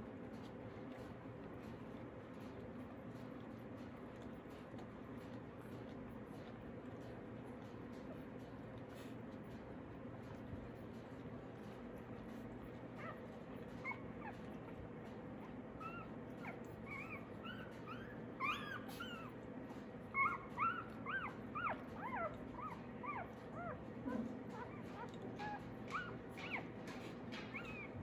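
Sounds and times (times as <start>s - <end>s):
puppies squeaking and whimpering: 12.7s - 14.8s, 15.4s - 28.0s.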